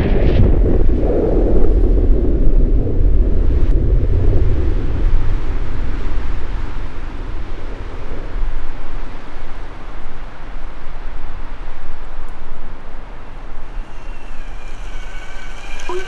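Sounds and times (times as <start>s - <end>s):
faint high tones: 13.6s - 16.0s.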